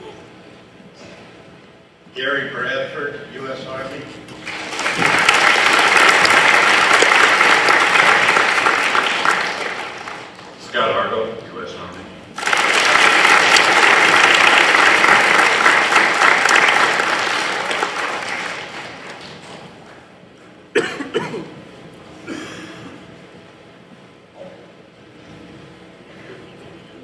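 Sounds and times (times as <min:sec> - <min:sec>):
audience applause: 0:04.4 - 0:10.6, 0:12.4 - 0:19.8.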